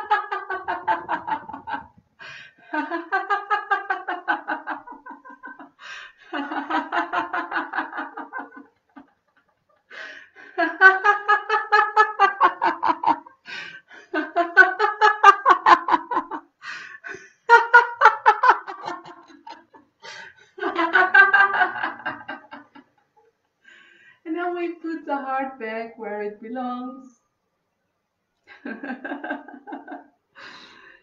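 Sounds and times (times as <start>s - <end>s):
woman laughing rhythmically: 0.0s - 23.6s, 28.5s - 30.1s.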